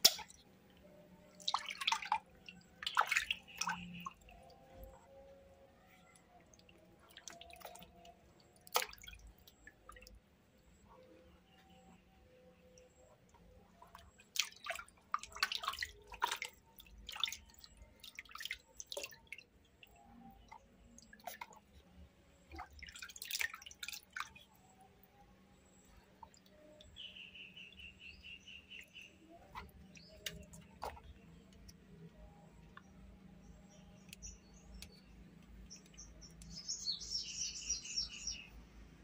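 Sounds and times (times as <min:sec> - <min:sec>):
water splashing in plastic basin: 0:01.4 - 0:04.9, 0:06.6 - 0:10.1, 0:13.9 - 0:19.5, 0:20.4 - 0:21.7, 0:22.5 - 0:24.4, 0:29.4 - 0:31.8.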